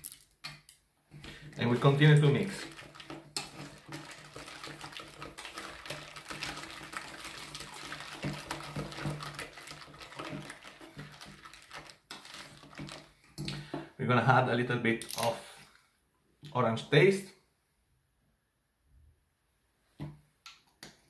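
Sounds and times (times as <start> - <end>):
whisk scraping steel bowl: 1.2 - 13.8.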